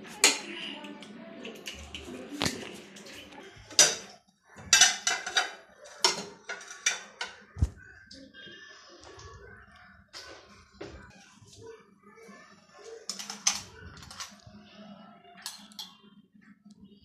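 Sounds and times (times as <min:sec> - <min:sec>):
metal spoon scraping ceramic plate: 0:04.7 - 0:07.4.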